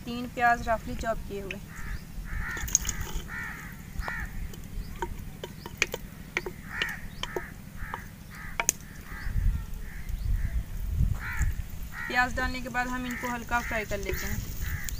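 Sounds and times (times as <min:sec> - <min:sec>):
crows cawing: 0:01.6 - 0:14.9
wooden spoon clicking on clay pot: 0:02.5 - 0:08.9.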